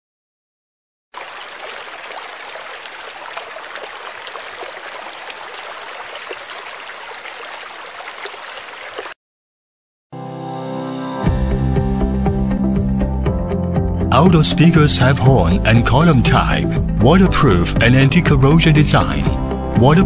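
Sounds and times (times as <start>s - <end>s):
rushing stream-like noise: 1.2s - 9.2s.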